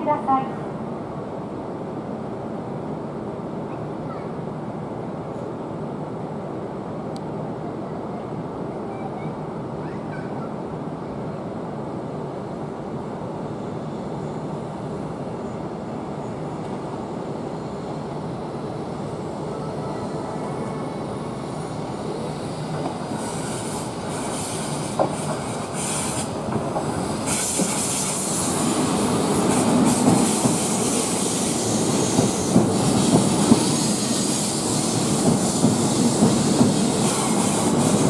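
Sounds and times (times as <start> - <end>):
electric train rumble: 10.4 - 38.0
train brake hiss: 22.5 - 38.0.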